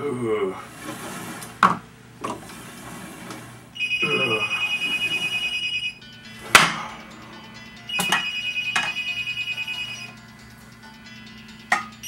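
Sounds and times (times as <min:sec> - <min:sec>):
telephone ringing: 0:03.8 - 0:06.4, 0:07.2 - 0:12.0.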